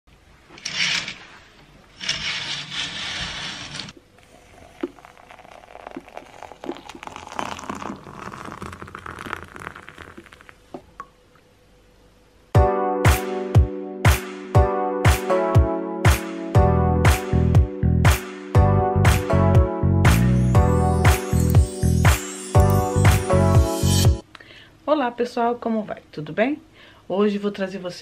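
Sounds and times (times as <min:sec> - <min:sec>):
curtains swishing along rail: 0:00.6 - 0:03.9
water pouring into mug: 0:04.2 - 0:10.6
spoon stirring: 0:04.3 - 0:10.4.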